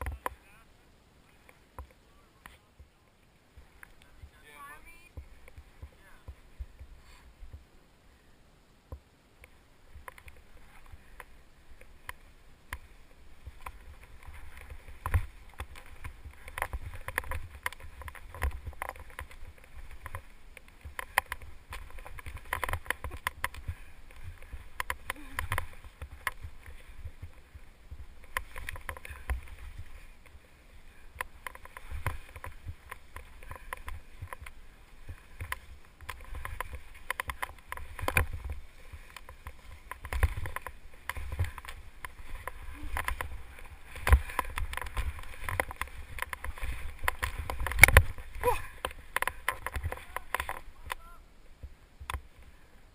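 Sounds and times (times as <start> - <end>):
wind on microphone: 9.8 - 52.2
skis swishing through snow: 10.4 - 50.8.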